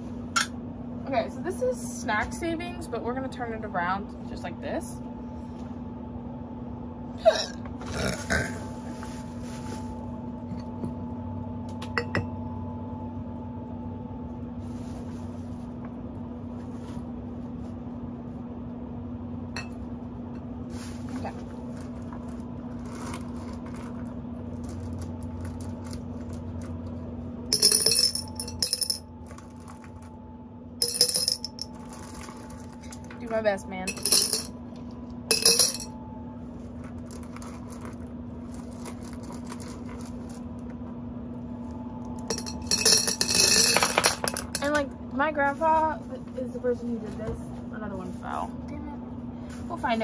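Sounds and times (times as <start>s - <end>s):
steady low hum: 0.0s - 50.0s
rocks and crystals clinking: 35.3s - 35.9s, 42.2s - 44.7s.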